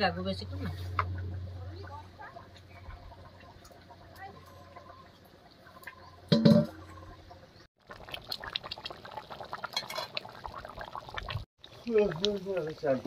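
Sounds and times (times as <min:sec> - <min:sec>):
curry boiling and bubbling: 0:00.2 - 0:13.0
steel bowl clanging: 0:05.8 - 0:07.2, 0:09.7 - 0:10.2.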